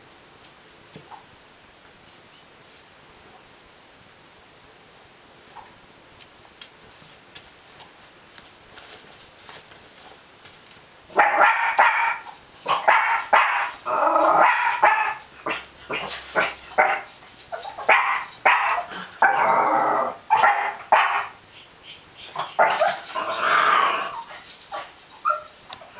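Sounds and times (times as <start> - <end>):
dog barking: 11.1 - 13.8, 14.4 - 19.4, 20.3 - 21.4, 22.4 - 23.1.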